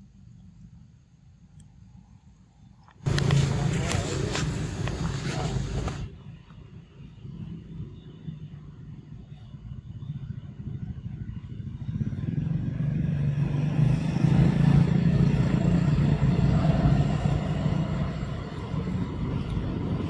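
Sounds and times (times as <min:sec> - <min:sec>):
vehicle engine running: 0:03.0 - 0:06.2, 0:11.8 - 0:20.0.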